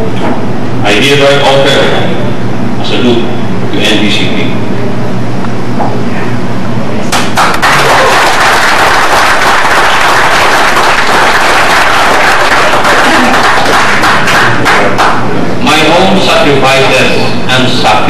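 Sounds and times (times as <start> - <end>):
audience applauding: 7.1 - 15.3.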